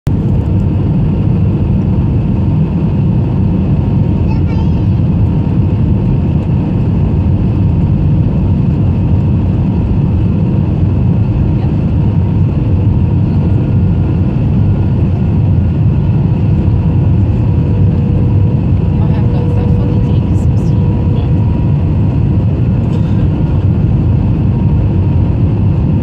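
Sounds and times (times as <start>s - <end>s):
jet engine and airflow rumble: 0.1s - 26.0s.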